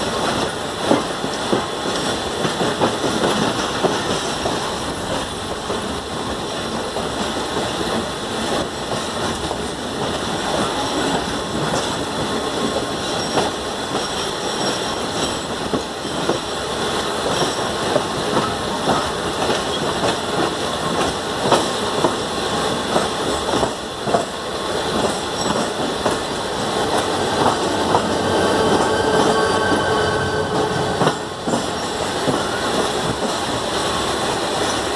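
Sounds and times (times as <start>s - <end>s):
train wheels rumbling on track: 0.0s - 34.9s
wheels clacking over rail joints: 7.0s - 28.9s.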